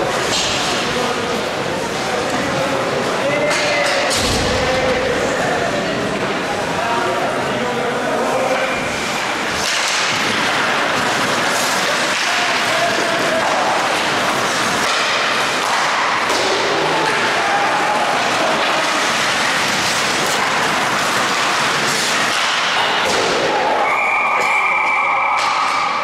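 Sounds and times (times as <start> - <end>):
skates scraping on ice: 8.3 - 23.7.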